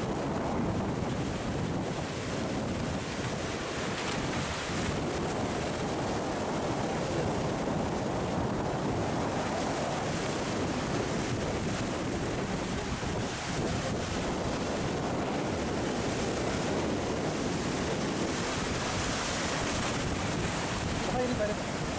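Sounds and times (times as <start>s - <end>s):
surf washing over rocks: 0.0s - 21.9s
wind buffeting microphone: 0.0s - 21.9s.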